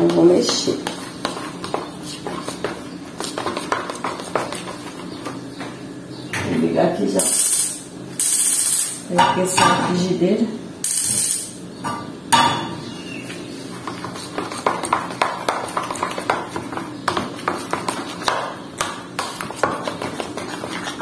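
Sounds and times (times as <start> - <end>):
utensil scraping plastic bowl: 19.3 - 21.0.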